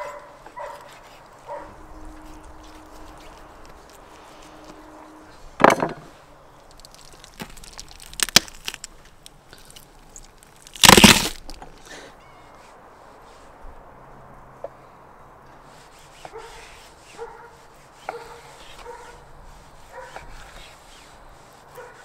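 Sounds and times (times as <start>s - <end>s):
bone cracking: 6.6s - 11.8s.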